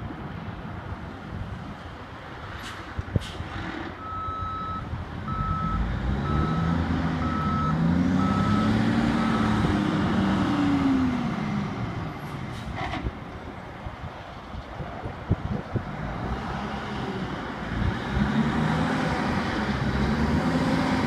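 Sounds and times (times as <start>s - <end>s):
truck backup alarm beeping: 4.0s - 9.7s
diesel engine running: 4.0s - 12.7s.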